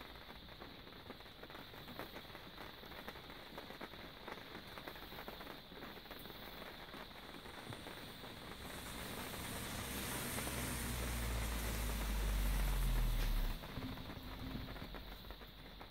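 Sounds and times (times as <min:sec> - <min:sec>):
rushing noise with low rumble: 0:07.2 - 0:15.9.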